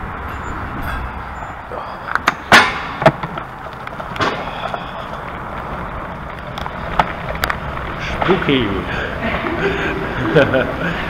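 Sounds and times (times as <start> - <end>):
sharp bicycle rattles: 0.0 - 9.7
bicycle tyre noise on trail: 3.2 - 11.0.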